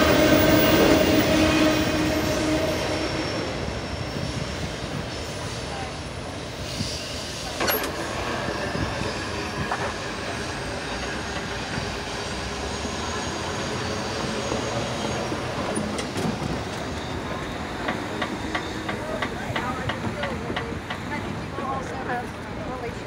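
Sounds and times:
train wheels rumbling on track: 0.0 - 23.0
faint wheel squeal: 12.8 - 19.2.

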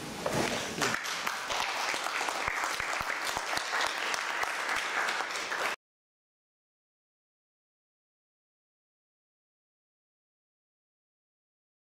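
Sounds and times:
audience applauding: 0.5 - 5.8.

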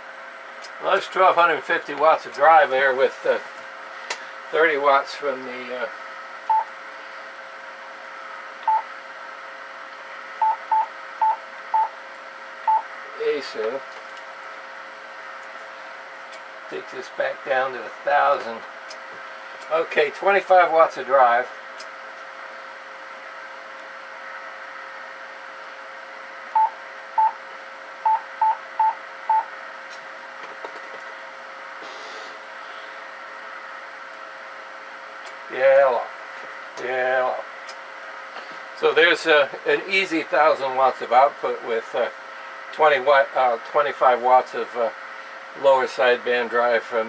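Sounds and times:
faint hum: 0.0 - 47.0.

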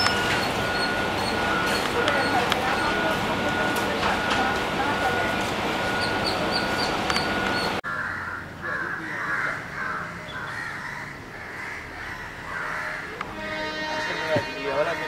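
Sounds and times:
train departing: 0.0 - 7.8, 13.2 - 15.0
crows cawing: 7.8 - 14.4.

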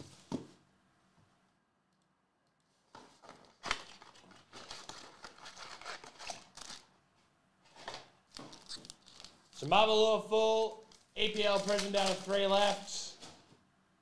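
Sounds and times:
paper tearing and crinkling: 3.2 - 6.9, 7.9 - 9.6, 10.8 - 13.4.

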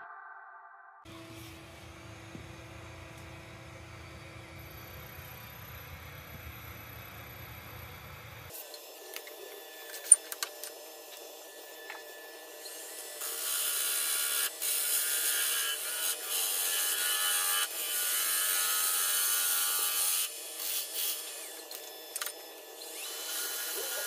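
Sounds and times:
lathe low hum: 1.1 - 10.1.

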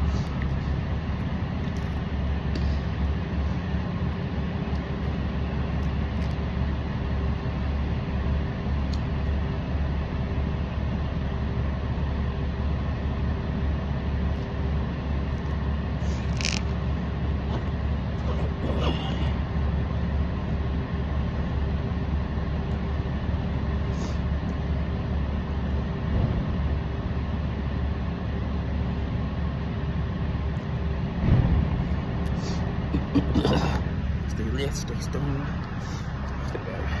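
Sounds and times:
faint constant hum: 0.0 - 37.0
low rumble: 29.0 - 37.0.

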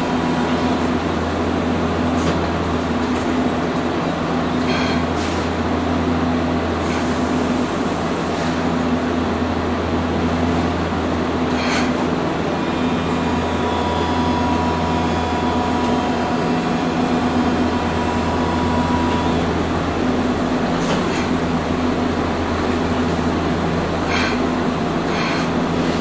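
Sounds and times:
tram running rumble: 0.0 - 26.0
steady high tone: 12.7 - 25.9.

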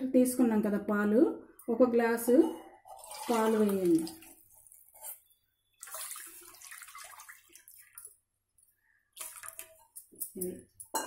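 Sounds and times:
milk pouring into water: 2.9 - 4.8, 5.7 - 8.3, 9.1 - 10.0.

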